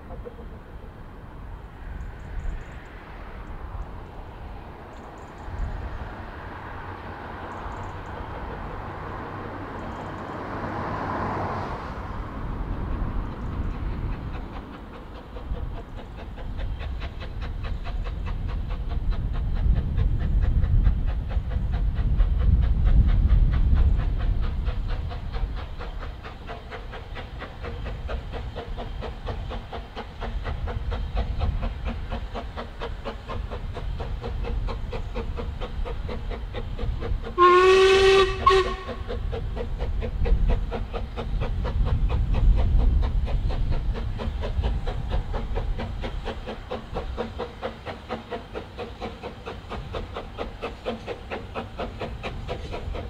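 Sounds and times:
steam locomotive chuffing: 0:00.0 - 0:53.0
steam whistle: 0:37.4 - 0:39.1.

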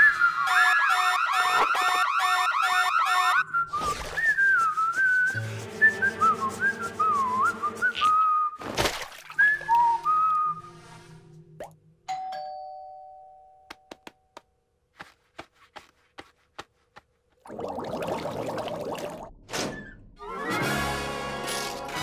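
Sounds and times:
character whistling a tune: 0:00.0 - 0:00.5, 0:03.5 - 0:08.6, 0:09.4 - 0:10.8
light music: 0:05.3 - 0:08.1
two-tone doorbell chime: 0:12.1 - 0:13.7.

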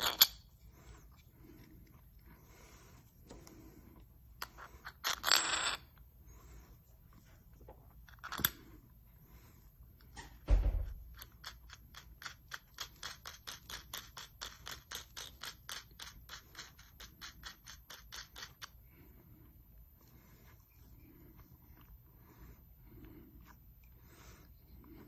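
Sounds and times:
thump: 0:10.2 - 0:11.0.

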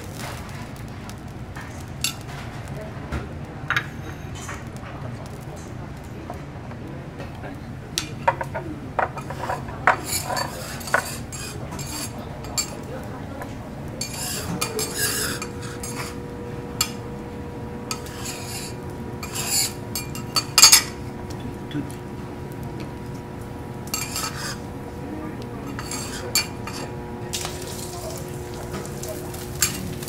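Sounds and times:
steady hum: 0:00.0 - 0:30.0
metal spatulas scraping on griddle: 0:09.0 - 0:12.9, 0:14.0 - 0:17.1, 0:17.8 - 0:21.0, 0:23.9 - 0:24.7, 0:25.7 - 0:27.0, 0:29.2 - 0:30.0.

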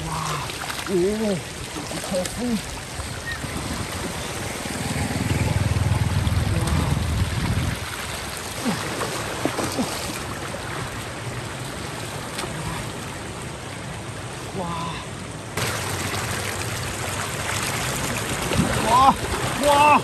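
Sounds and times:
floodwater running and trickling: 0:00.0 - 0:20.0
low rumble: 0:04.3 - 0:08.0.

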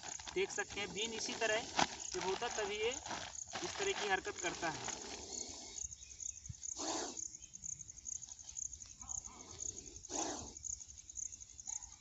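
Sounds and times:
insects trilling: 0:00.0 - 0:12.0
snake hissing: 0:04.9 - 0:06.0, 0:06.7 - 0:07.3, 0:09.7 - 0:10.6.

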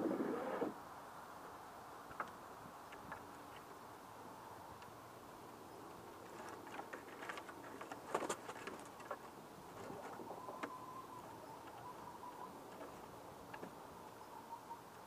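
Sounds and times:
hens' claws scratching on wood: 0:06.3 - 0:10.2
soft hen call: 0:10.2 - 0:12.7.

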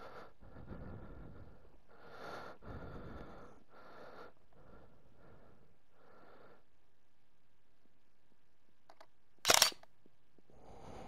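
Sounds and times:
person breathing through nose: 0:00.0 - 0:06.6, 0:10.5 - 0:11.0.

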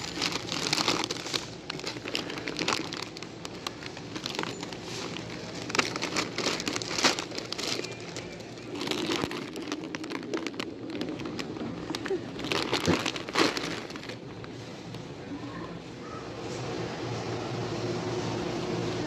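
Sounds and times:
plastic chip bag crinkling: 0:00.0 - 0:14.6.

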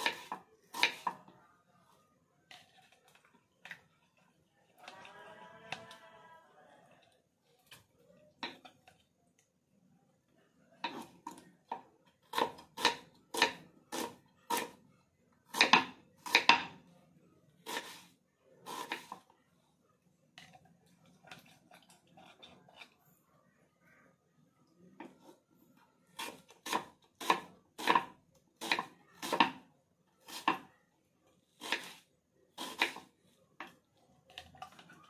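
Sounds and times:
knife chopping on wooden board: 0:26.2 - 0:29.6.

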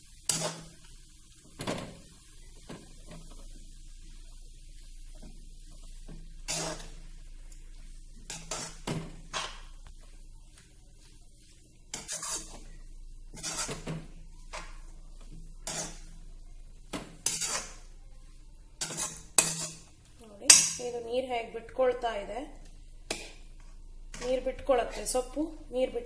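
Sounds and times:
spoon scraping metal pan: 0:00.2 - 0:00.8, 0:06.4 - 0:07.0, 0:08.2 - 0:09.7, 0:11.9 - 0:16.2, 0:17.0 - 0:18.0, 0:18.8 - 0:19.9, 0:20.5 - 0:21.0, 0:23.1 - 0:25.2.

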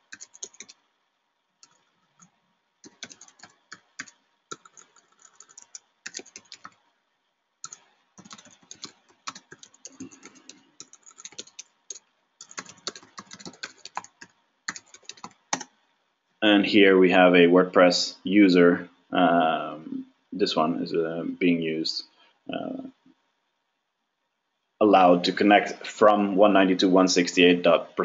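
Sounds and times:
typing on computer keyboard: 0:00.0 - 0:00.8, 0:01.6 - 0:06.8, 0:07.6 - 0:15.7.

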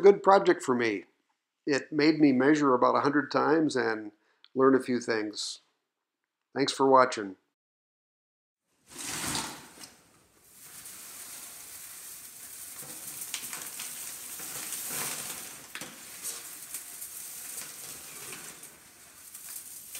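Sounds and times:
metal swarf rustling and crackling: 0:08.8 - 0:19.9.

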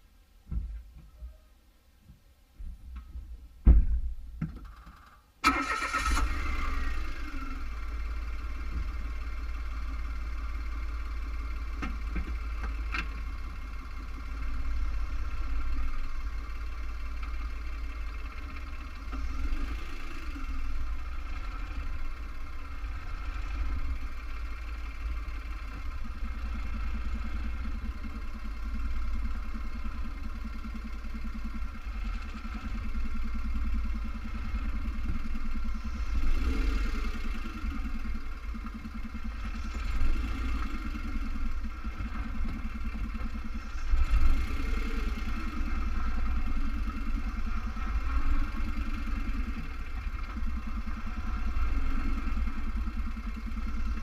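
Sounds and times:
starter clicks and knock: 0:02.9 - 0:05.2
car engine starting and idling: 0:03.0 - 0:54.0.

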